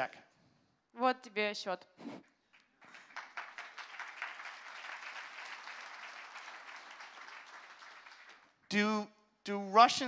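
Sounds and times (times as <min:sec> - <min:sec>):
audience applauding: 0:02.6 - 0:08.7.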